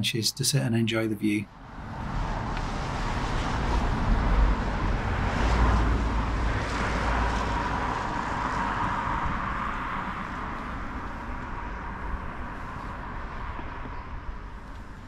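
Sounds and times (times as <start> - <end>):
car tyre and engine noise: 1.5 - 15.0.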